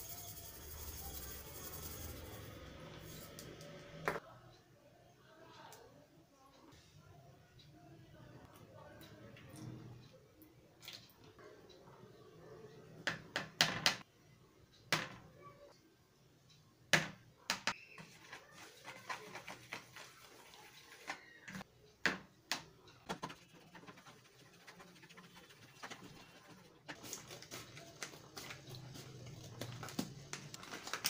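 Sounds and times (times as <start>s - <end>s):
whisk ticking against bowl: 23.1s - 26.8s.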